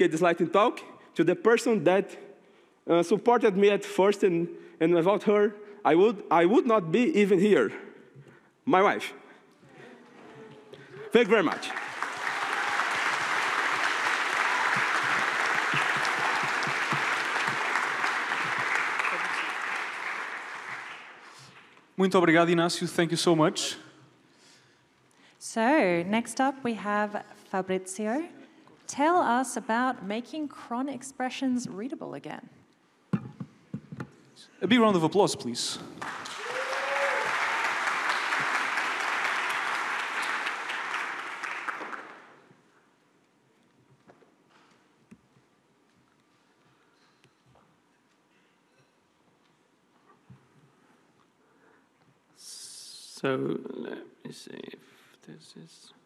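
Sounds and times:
audience applauding: 11.0s - 21.8s, 35.9s - 42.5s.

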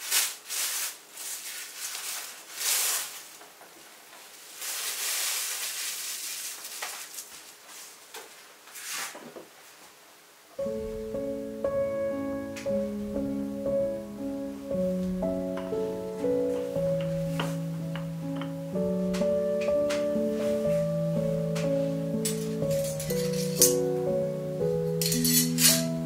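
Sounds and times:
rustling and scraping: 0.0s - 10.0s, 19.2s - 21.0s, 21.6s - 23.8s, 25.0s - 26.0s
piano music: 10.6s - 26.0s.

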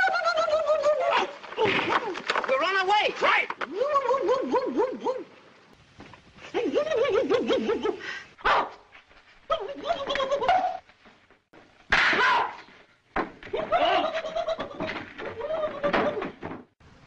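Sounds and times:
person laughing: 0.0s - 1.3s, 6.4s - 8.2s, 9.5s - 10.8s, 13.5s - 16.4s.

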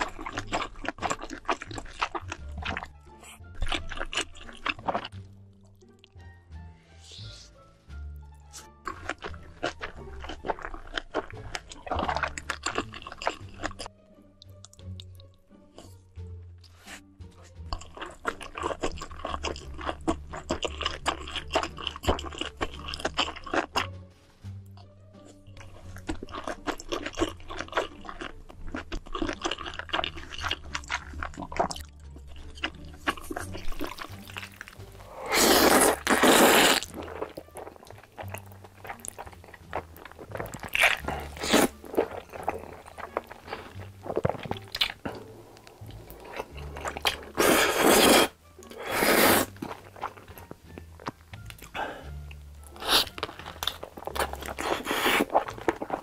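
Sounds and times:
crunchy chewing: 0.0s - 6.1s, 8.5s - 13.9s, 17.7s - 23.9s, 24.8s - 56.0s
background music: 0.0s - 56.0s
slurping noodles: 32.4s - 50.3s, 52.7s - 56.0s.

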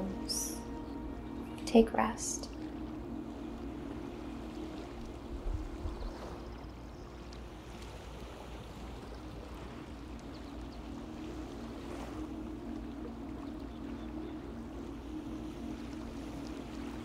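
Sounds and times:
faint steady hum: 0.0s - 17.0s
wind and water: 0.0s - 17.0s.

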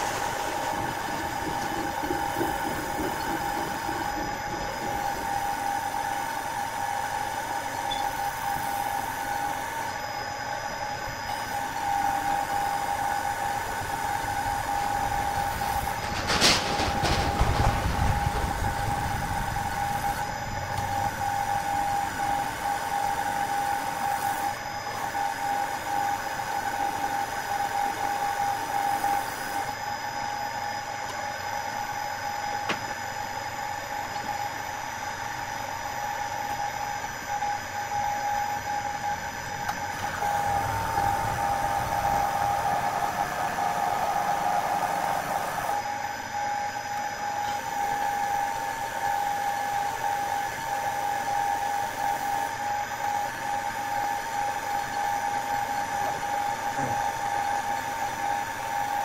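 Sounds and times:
wood lathe whining: 0.0s - 16.1s, 36.2s - 46.0s.

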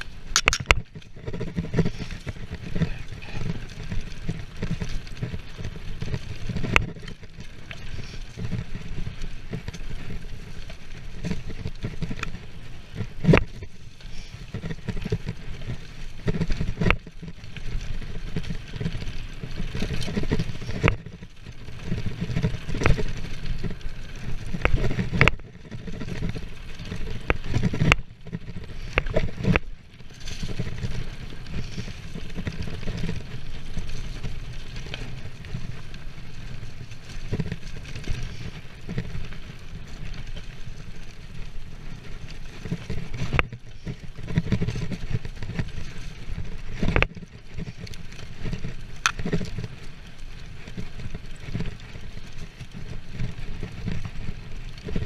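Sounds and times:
bike rattling over bumps: 0.0s - 55.0s
bike tyres rolling on dirt: 0.0s - 55.0s
wind rumbling on microphone: 0.0s - 55.0s.

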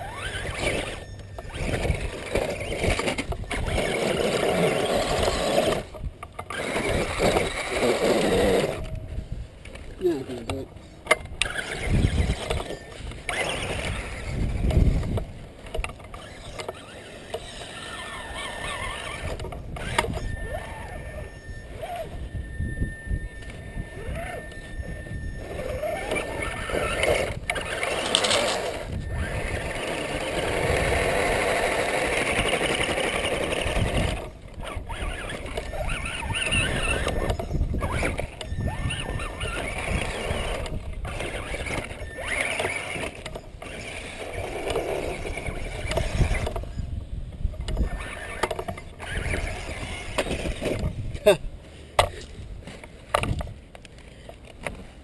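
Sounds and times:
tires scrabbling on sand: 0.0s - 8.8s, 24.9s - 46.8s
electric motor whirring: 0.0s - 51.4s
thin steady whine: 0.0s - 55.0s.

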